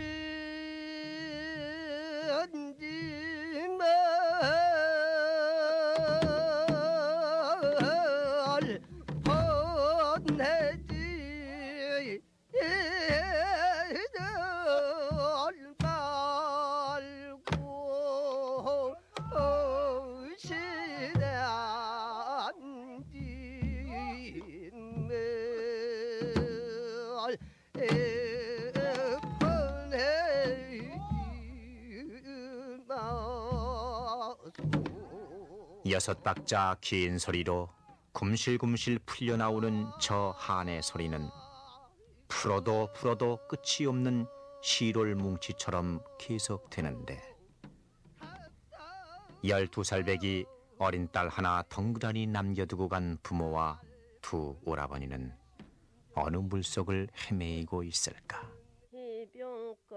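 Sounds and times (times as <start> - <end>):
woman singing with vibrato: 17.0 - 27.1, 27.8 - 35.9, 58.7 - 59.9.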